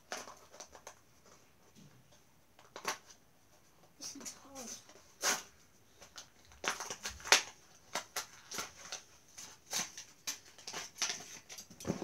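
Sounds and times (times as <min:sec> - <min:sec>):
plastic packaging crinkling: 0:04.9 - 0:12.0.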